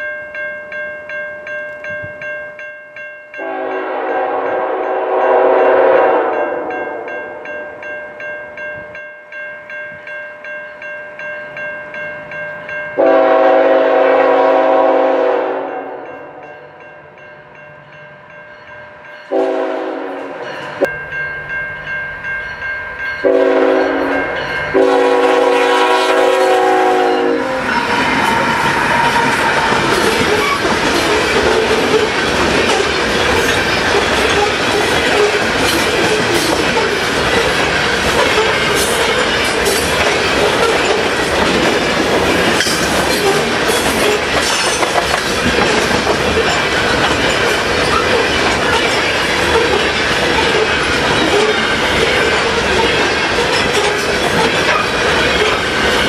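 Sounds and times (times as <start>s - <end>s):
locomotive air horn chord: 3.4s - 7.1s, 13.0s - 16.4s, 19.3s - 20.4s, 23.2s - 27.9s
train rumbling past: 3.4s - 8.9s, 12.0s - 56.0s
wheels clicking over rail joints: 27.6s - 56.0s.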